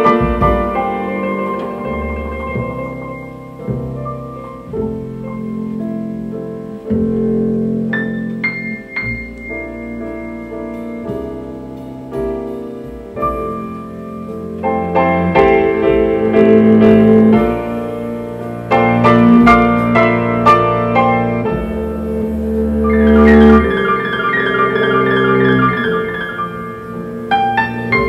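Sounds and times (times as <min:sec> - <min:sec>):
piano chords through loudspeakers: 0:00.0 - 0:28.0.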